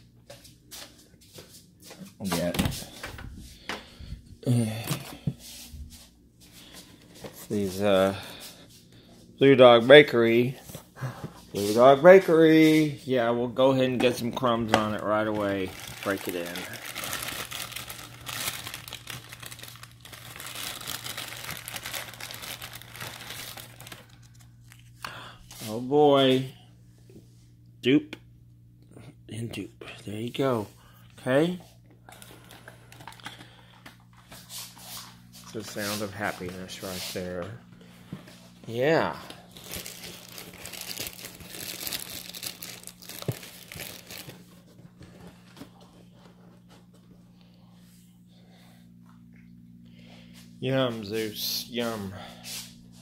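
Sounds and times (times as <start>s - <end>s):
plastic bag crinkling: 13.6s - 25.0s, 38.8s - 44.7s.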